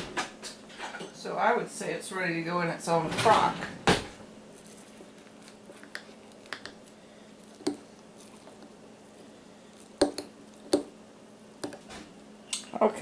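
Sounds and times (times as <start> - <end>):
spoon stirring thick starter: 4.5 - 10.9.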